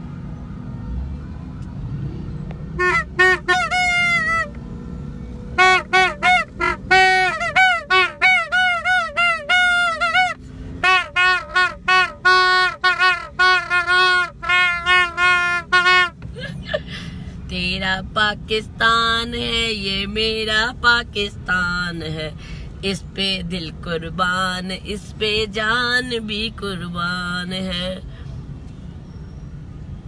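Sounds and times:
plastic toy trumpet toots: 2.8 - 4.6, 5.6 - 16.1.

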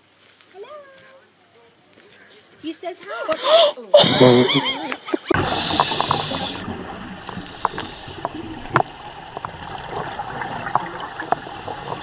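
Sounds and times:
underwater watery hiss: 5.4 - 6.8
sharp clicks and crackles: 5.7 - 12.0.

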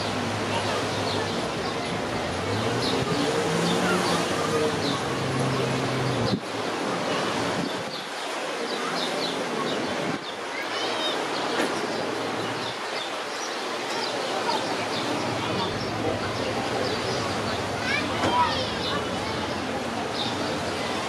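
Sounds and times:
surf washing: 0.0 - 21.0
small birds chirping: 7.2 - 21.0.

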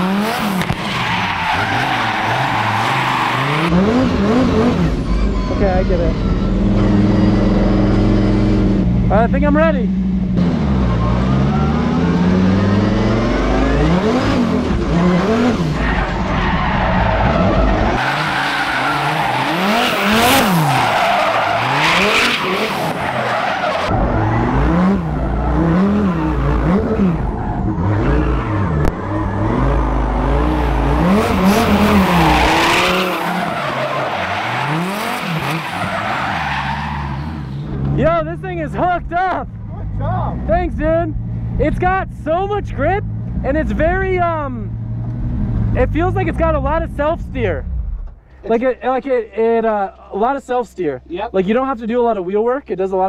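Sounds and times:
car engine revving: 0.0 - 48.3
tire squeal: 0.4 - 8.7, 10.5 - 37.9.

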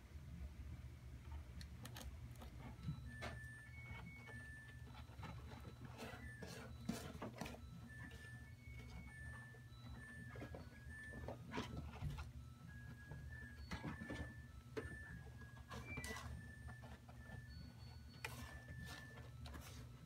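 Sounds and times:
kittens scratching in cat litter: 3.8 - 9.1, 15.6 - 20.0.

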